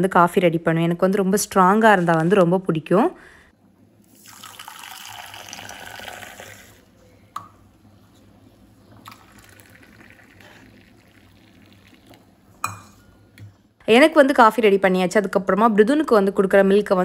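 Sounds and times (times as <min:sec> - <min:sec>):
milk pouring into steel bowl: 0:04.1 - 0:06.9, 0:09.0 - 0:12.3
coffee pouring into steel tumbler: 0:04.2 - 0:06.8, 0:09.0 - 0:12.3.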